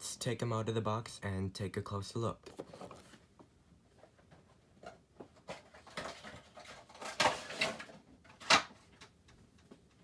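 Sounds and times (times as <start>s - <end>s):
cardboard and plastic rustling: 2.4s - 9.1s
sharp plastic crack: 5.8s - 9.2s.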